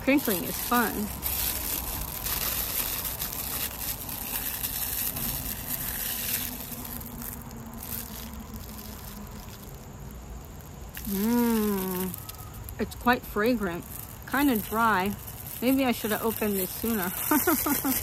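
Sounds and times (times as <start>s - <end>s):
foil wrapper crinkling: 0.0s - 18.0s
person humming: 11.0s - 12.2s.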